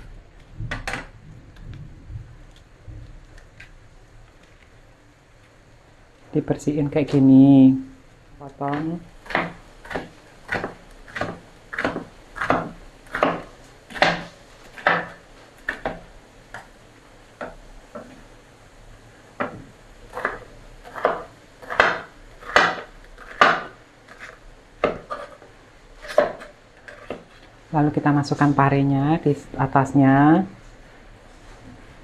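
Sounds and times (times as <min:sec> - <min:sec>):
knife chopping on wooden board: 0:08.7 - 0:16.7, 0:19.4 - 0:25.4, 0:26.0 - 0:27.3.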